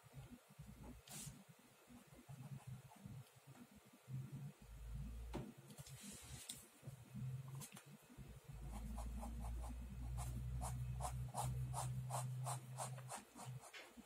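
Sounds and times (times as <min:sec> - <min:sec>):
low steady hum: 0:00.0 - 0:14.0
pen scratching on paper: 0:08.6 - 0:13.7.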